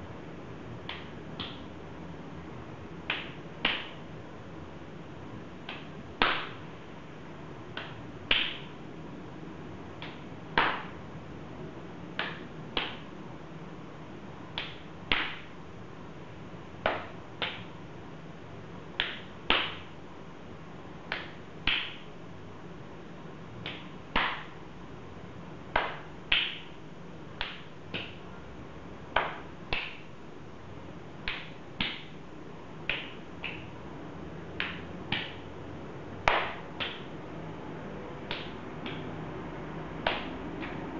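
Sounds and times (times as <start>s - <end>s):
faint steady hum: 0.0s - 40.9s
open-handed face slaps: 0.8s - 1.7s, 3.0s - 4.1s, 5.6s - 6.6s, 7.7s - 8.8s, 10.0s - 11.0s, 12.2s - 13.1s, 14.5s - 15.6s, 16.8s - 17.8s, 19.0s - 20.0s, 21.1s - 22.1s, 23.6s - 24.6s, 25.7s - 26.8s, 27.4s - 28.3s, 29.1s - 30.2s, 31.2s - 32.2s, 32.8s - 33.8s, 34.6s - 35.5s, 36.2s - 37.2s, 38.2s - 39.1s, 40.0s - 40.9s.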